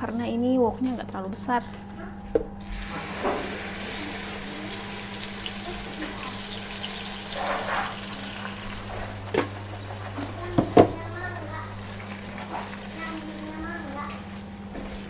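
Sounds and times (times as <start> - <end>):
steady low hum: 0.0 - 15.0
paste sizzling in hot oil: 2.6 - 10.5.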